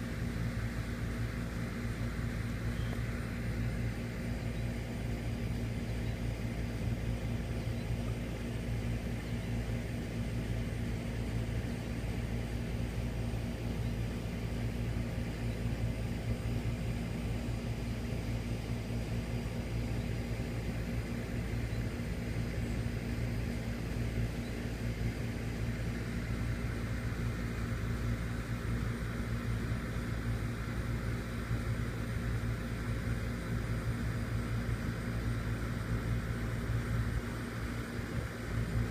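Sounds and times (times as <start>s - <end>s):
low machine hum: 0.0s - 38.9s.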